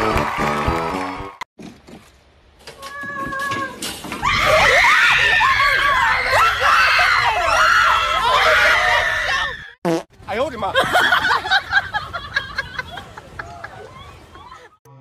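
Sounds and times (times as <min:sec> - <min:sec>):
people screaming and shrieking: 0:02.8 - 0:09.8.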